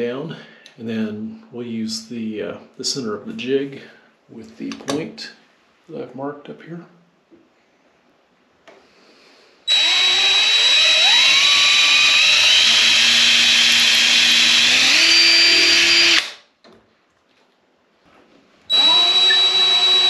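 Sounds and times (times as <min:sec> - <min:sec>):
cordless drill drilling into wood: 0:09.7 - 0:16.4.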